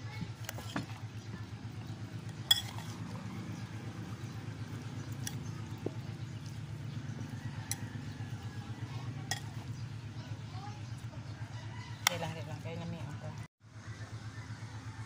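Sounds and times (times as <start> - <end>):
spoon tossing wet food in bowl: 0.3 - 10.0.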